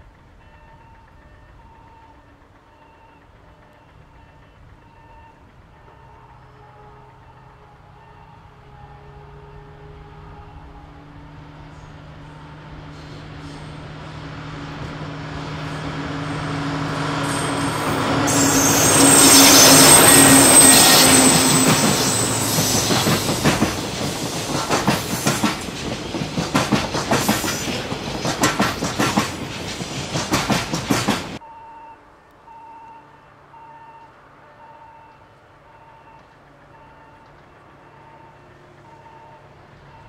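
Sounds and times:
train wheels clacking on rails: 0:00.0 - 0:08.4, 0:11.8 - 0:31.4
locomotive engine hum: 0:01.0 - 0:32.4
high wheel squeal: 0:15.6 - 0:25.7.

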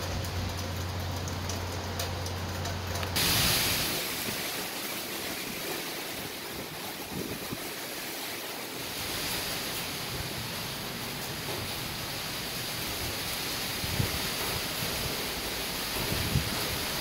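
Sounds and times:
wind and rain rushing: 0:00.0 - 0:17.0
wind buffeting microphone: 0:05.3 - 0:08.0, 0:12.9 - 0:15.3, 0:15.9 - 0:17.0.

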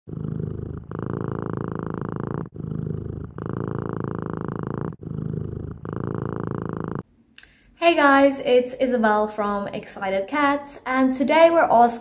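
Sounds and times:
cat purring: 0:00.1 - 0:07.1.

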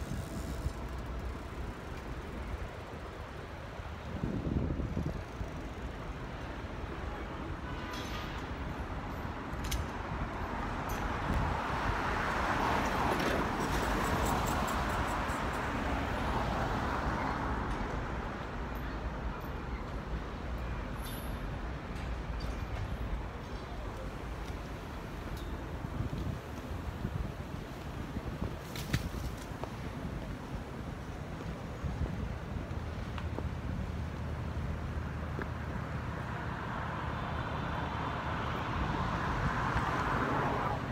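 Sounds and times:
city traffic noise: 0:00.0 - 0:40.9
passing vehicle hiss: 0:36.0 - 0:40.9.

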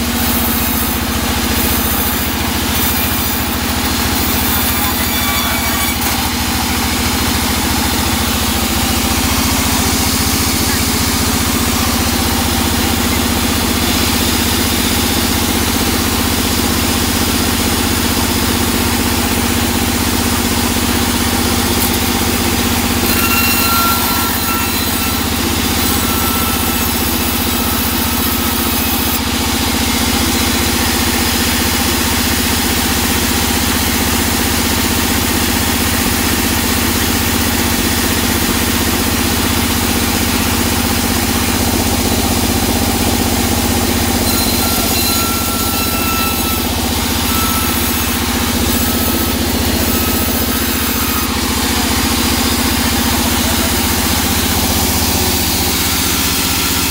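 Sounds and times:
band saw motor hum: 0:00.0 - 0:56.9.

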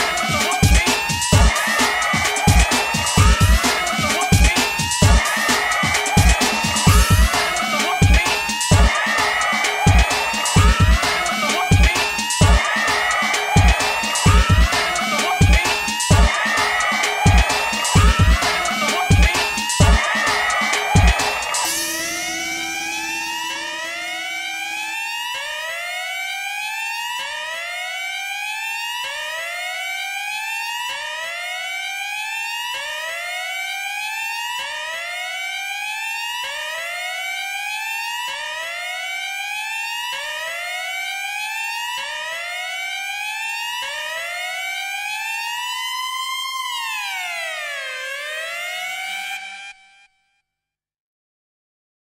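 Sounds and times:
synth tone sweeping upward: 0:05.0 - 0:26.3.

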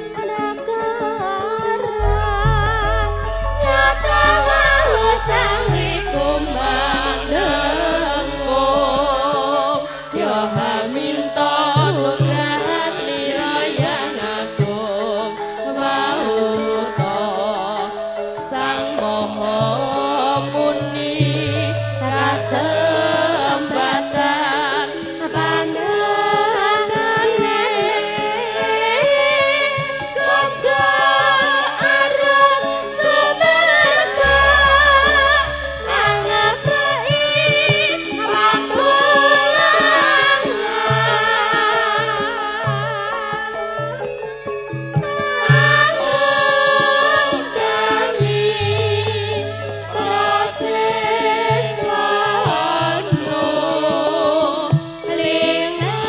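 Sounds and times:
gamelan ensemble: 0:00.0 - 0:56.0
person singing ornamented vocal: 0:00.0 - 0:56.0
deep held low notes: 0:02.0 - 0:09.3.

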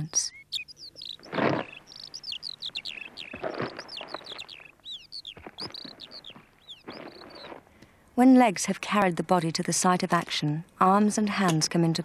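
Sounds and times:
small birds chirping: 0:00.0 - 0:08.0.

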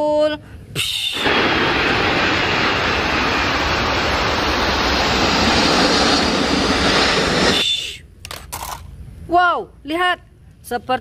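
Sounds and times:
jet engines roaring: 0:01.0 - 0:08.1.

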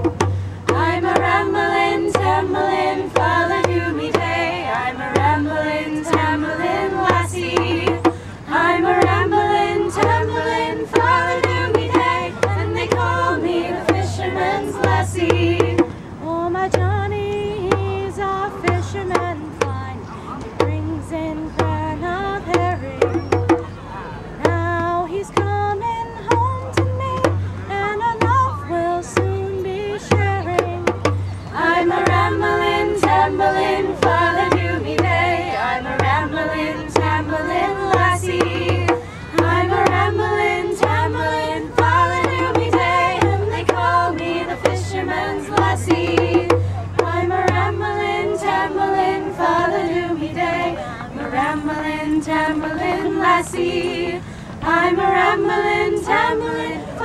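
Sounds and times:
hand drum beating: 0:00.0 - 0:15.9, 0:16.6 - 0:20.0, 0:20.6 - 0:23.8, 0:24.4 - 0:49.2
group singing a folk song: 0:00.0 - 0:19.8, 0:20.6 - 0:23.7, 0:24.4 - 0:57.0.

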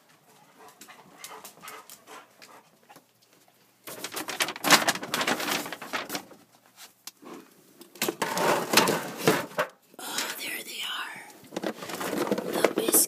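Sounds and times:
plastic containers rustling and clattering: 0:02.9 - 0:10.5, 0:11.4 - 0:13.0.

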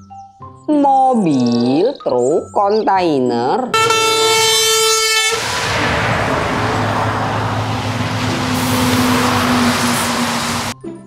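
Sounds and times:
truck horn blast: 0:03.7 - 0:10.7
road noise: 0:03.7 - 0:10.8
truck engine running: 0:03.8 - 0:10.8.

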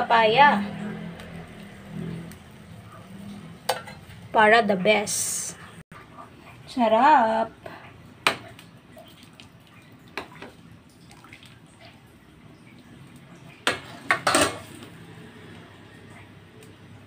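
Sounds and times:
liquid sloshing in pot: 0:08.2 - 0:15.5.

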